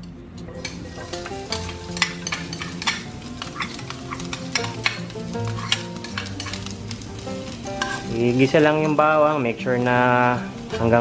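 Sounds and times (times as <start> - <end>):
background music: 0.0 - 11.0
metal spatula scraping and tapping: 0.5 - 7.0, 7.7 - 8.1
garlic sizzling in oil: 0.5 - 11.0.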